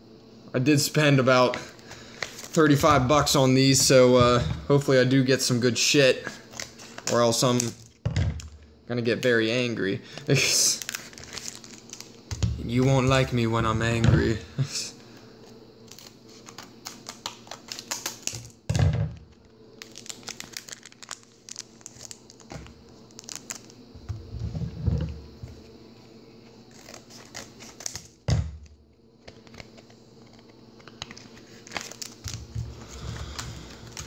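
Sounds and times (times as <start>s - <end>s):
foil wrapper crinkling: 1.6s - 4.0s, 6.2s - 13.3s, 15.8s - 18.6s, 19.2s - 23.8s, 26.6s - 34.0s.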